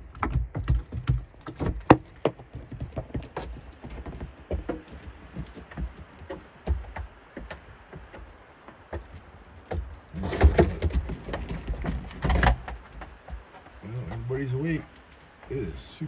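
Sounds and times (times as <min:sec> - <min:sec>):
sharp clicks and crunches: 0:09.8 - 0:15.5.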